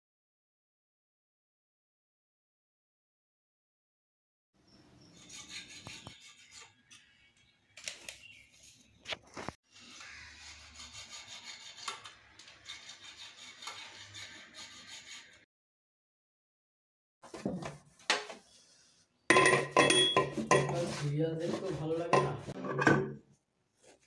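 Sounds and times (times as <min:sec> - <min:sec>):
metal parts rubbing and scraping: 0:05.1 - 0:07.2, 0:09.7 - 0:15.4, 0:19.5 - 0:23.1.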